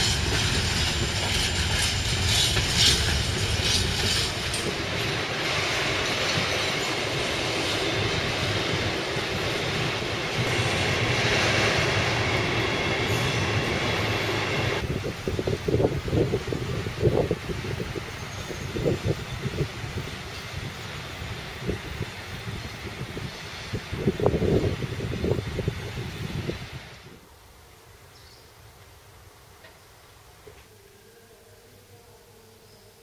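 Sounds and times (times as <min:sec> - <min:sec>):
rail-joint clicks: 0:00.0 - 0:07.0
train wheels rumbling on track: 0:00.0 - 0:27.2.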